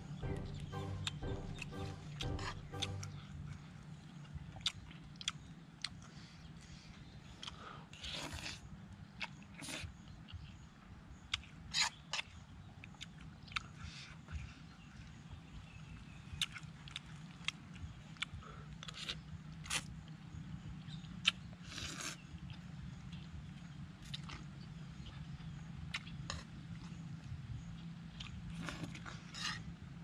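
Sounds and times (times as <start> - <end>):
person chewing noodles: 12.2 - 14.5, 16.4 - 20.0, 21.2 - 27.0, 28.1 - 29.6.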